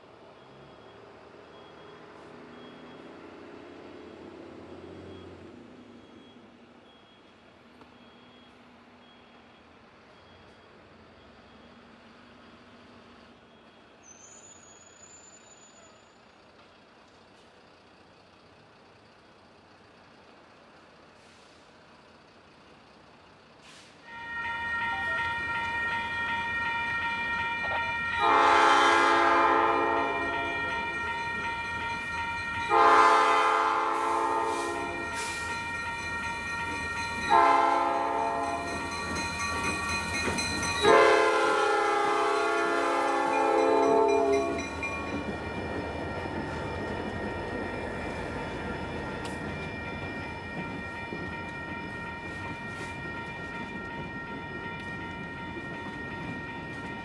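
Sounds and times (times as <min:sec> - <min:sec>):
freight cars rumbling on rails: 0:00.0 - 0:57.0
locomotive air horn blasts: 0:24.0 - 0:36.0, 0:37.3 - 0:38.7, 0:40.8 - 0:44.6.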